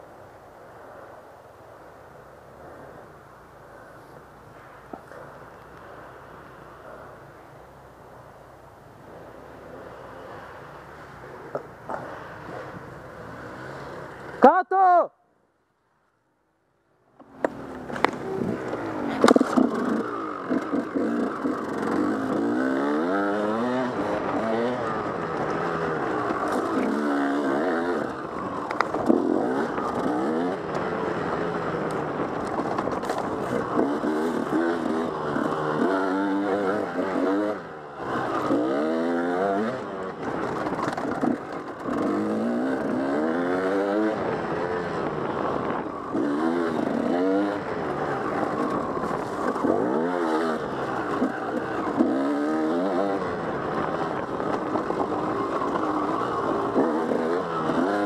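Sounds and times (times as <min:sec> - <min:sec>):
dirt bike engine revving: 0:17.4 - 0:58.0.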